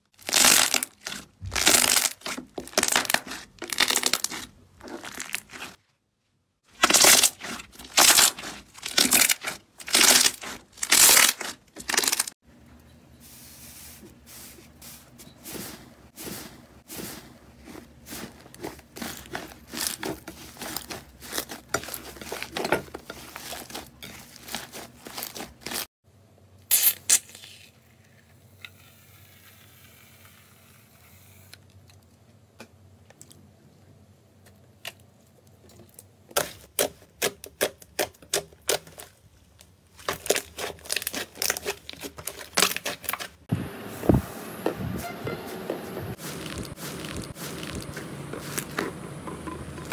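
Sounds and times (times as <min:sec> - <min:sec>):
slime crackling and popping: 0:00.2 - 0:05.8, 0:06.8 - 0:12.3, 0:40.0 - 0:43.4.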